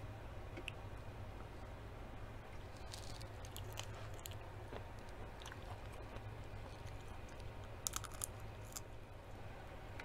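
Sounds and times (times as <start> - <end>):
faint low hum: 0.0 - 10.0
person chewing food: 2.6 - 8.9.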